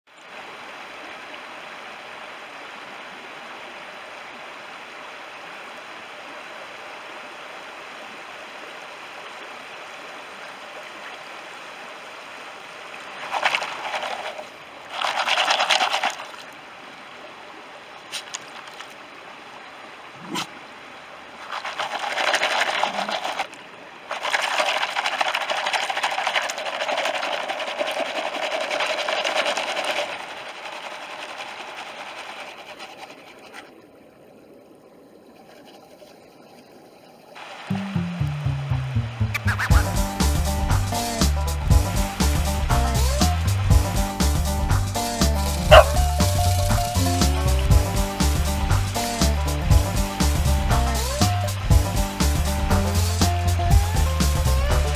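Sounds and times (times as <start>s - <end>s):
shallow stream running: 0.1s - 54.9s
water and gravel sloshing in pan: 13.1s - 16.6s, 21.3s - 33.8s.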